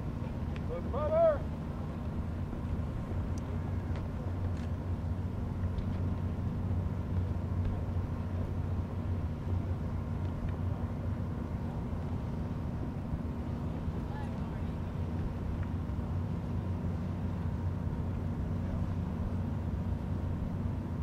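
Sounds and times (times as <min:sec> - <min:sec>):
distant engines droning: 0:00.0 - 0:21.0
faint ticks: 0:10.2 - 0:10.6.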